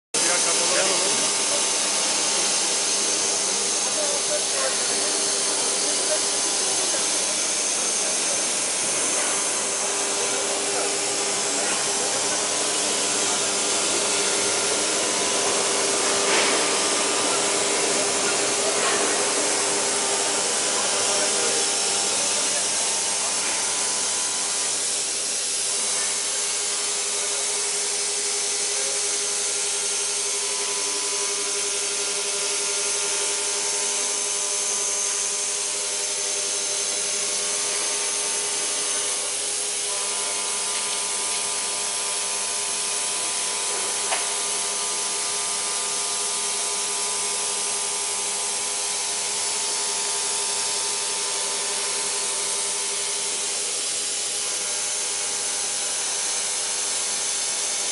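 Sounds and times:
metal cutting hiss: 0.2 - 29.1
spindle whine: 0.2 - 41.7
sharp click: 44.1 - 44.3.

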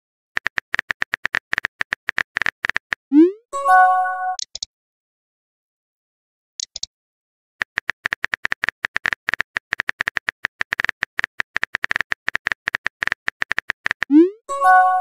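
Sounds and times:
keyboard typing clicks: 0.4 - 3.0, 4.3 - 4.7, 6.6 - 6.9, 7.6 - 14.3.

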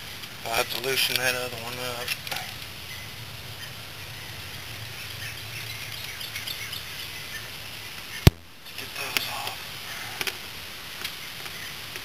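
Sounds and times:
faint bird chirps: 2.8 - 8.3.

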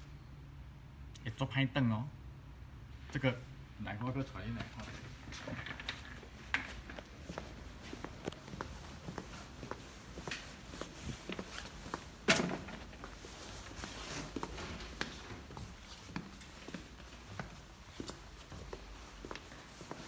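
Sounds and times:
footsteps on hard floor: 6.6 - 12.2, 12.8 - 20.0.

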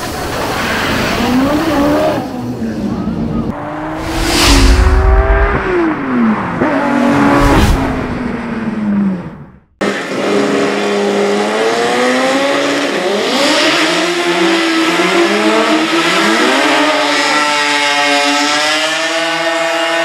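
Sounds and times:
race car engines revving: 0.1 - 20.0.

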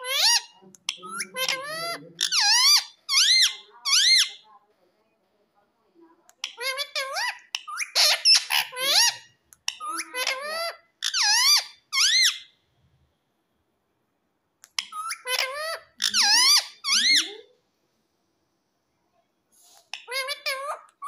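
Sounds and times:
parakeet talking: 0.0 - 4.5, 6.4 - 12.5, 14.8 - 17.5, 20.0 - 21.0.

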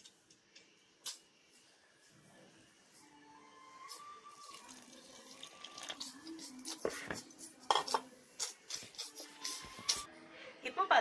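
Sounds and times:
metal bowl clinking and scraping: 6.9 - 8.1.

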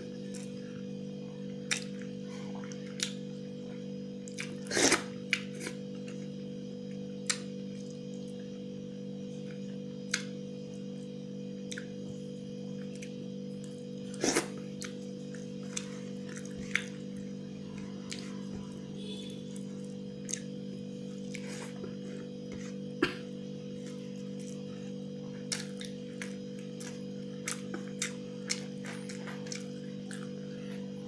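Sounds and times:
steady low hum: 0.0 - 31.0
chewing: 12.8 - 18.8, 23.8 - 30.9.

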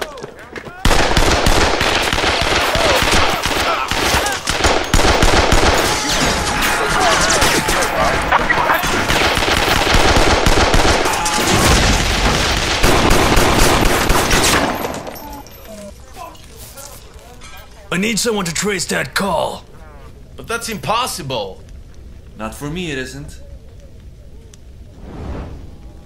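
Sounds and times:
machine-gun fire: 0.8 - 15.0.

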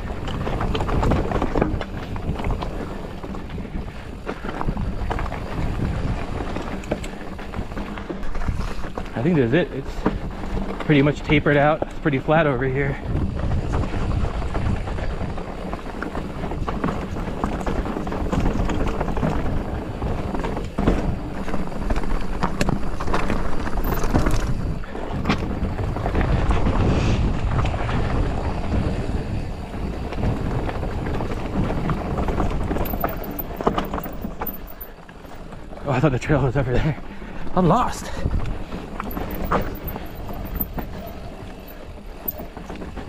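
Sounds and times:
wind on microphone: 0.0 - 11.5, 12.8 - 35.0
bike rattling over bumps: 0.0 - 43.0
bike tyres on dirt: 0.0 - 43.0.

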